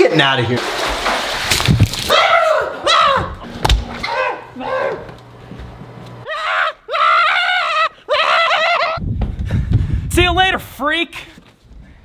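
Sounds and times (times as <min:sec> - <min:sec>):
man yelling and shrieking: 0:02.1 - 0:03.4, 0:06.3 - 0:09.0.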